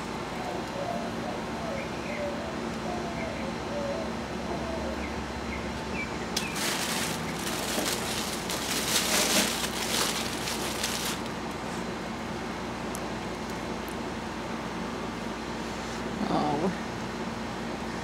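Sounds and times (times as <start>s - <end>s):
tissue paper rustling: 6.4s - 11.4s.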